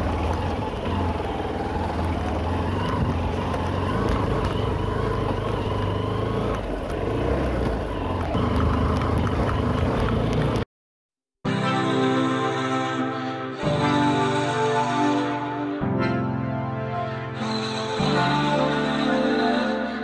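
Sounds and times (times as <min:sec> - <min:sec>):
motorcycle on stony dirt track: 0:00.0 - 0:10.7.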